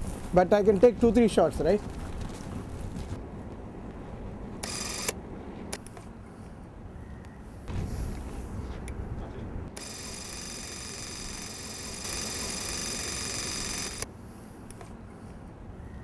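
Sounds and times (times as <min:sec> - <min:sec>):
film projector whirring: 0:04.6 - 0:05.1, 0:09.7 - 0:14.1.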